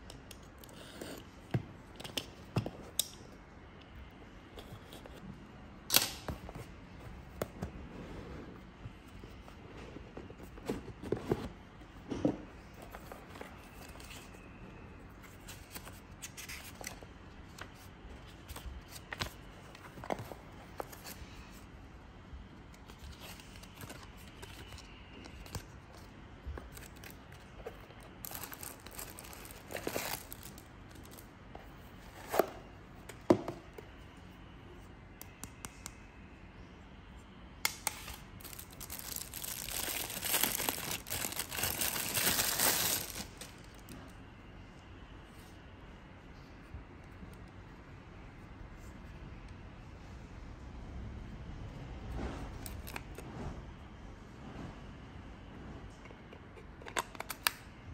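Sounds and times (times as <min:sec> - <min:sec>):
cardboard box and paper rustling: 0:26.6 - 0:31.2, 0:38.4 - 0:43.5
plastic bag crinkling: 0:28.2 - 0:31.1, 0:38.4 - 0:43.8.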